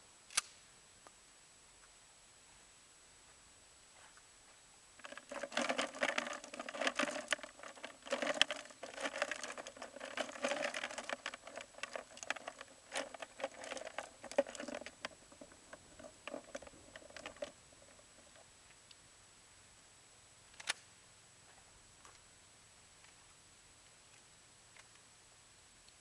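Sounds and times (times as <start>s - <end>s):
rustling and crackling: 3.9s - 18.8s.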